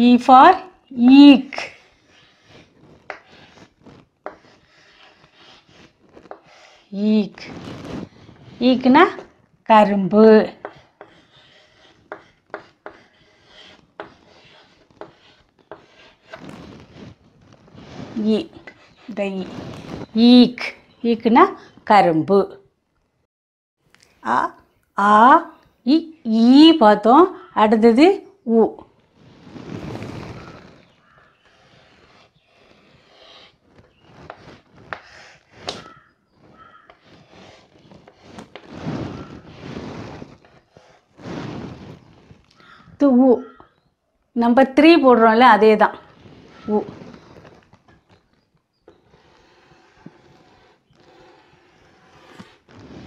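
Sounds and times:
chalk scratching on chalkboard: 0.0s - 21.8s, 29.1s - 43.8s, 44.9s - 53.0s
chalk tapping on board: 2.1s - 6.8s, 10.5s - 16.4s, 34.2s - 36.0s.

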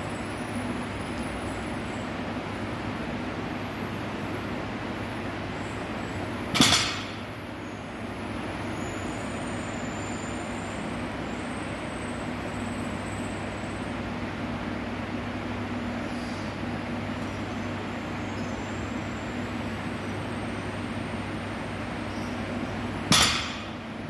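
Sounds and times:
steady hum: 10.4s - 24.0s.

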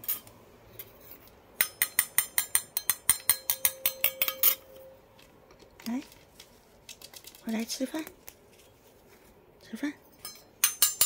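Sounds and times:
spoon clinking against bowl: 1.6s - 4.8s.

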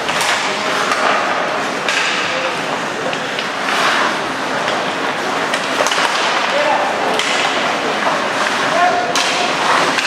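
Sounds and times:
hockey sticks and puck clacking: 0.0s - 10.0s
skate blades scraping ice: 0.0s - 10.0s.

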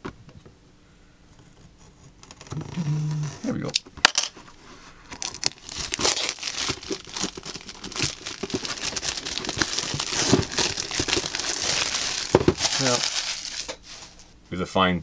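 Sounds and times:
plastic film crinkling and tearing: 2.1s - 2.8s, 5.0s - 14.2s.

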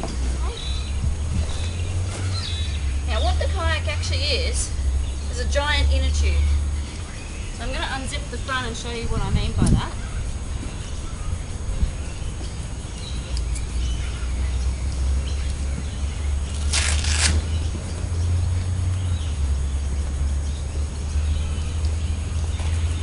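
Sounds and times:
low steady rumble: 0.0s - 23.0s
faint bird chirps: 0.4s - 3.0s.

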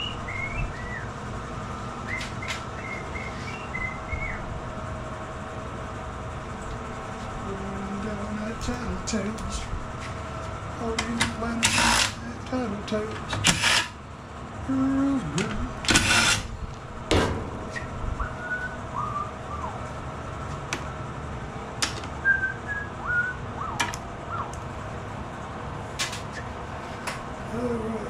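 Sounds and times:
faint whistle-like chirps: 0.0s - 1.1s, 2.1s - 4.4s, 17.7s - 19.8s, 22.2s - 24.5s
cordless drill whirring: 11.6s - 12.2s, 13.4s - 14.0s, 15.9s - 16.5s.

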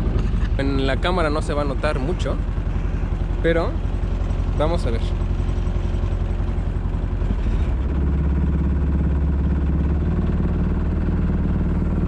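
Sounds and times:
boat engine droning at full throttle: 0.0s - 12.0s.

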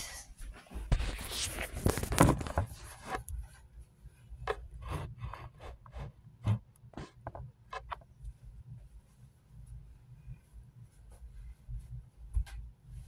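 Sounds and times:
soft taps of bedding: 11.0s - 13.0s.

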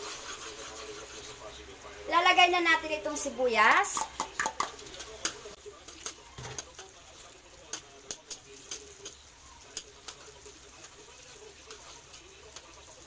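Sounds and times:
metal spatula scraping wok: 0.0s - 1.8s
faint sizzle: 0.0s - 13.0s.

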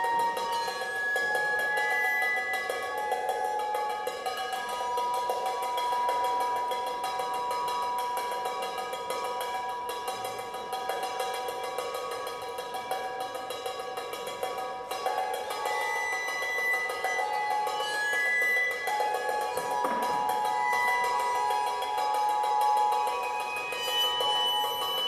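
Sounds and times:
ringing drum tones: 0.0s - 25.0s
rapid rattle of drum strikes: 19.6s - 20.6s.

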